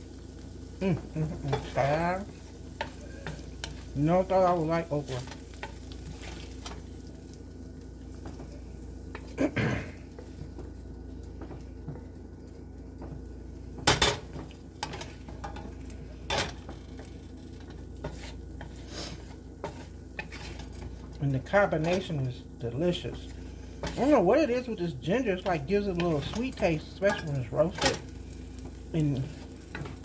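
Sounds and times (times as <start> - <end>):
wooden spatula scraping skillet: 0.9 - 7.0, 13.8 - 30.0.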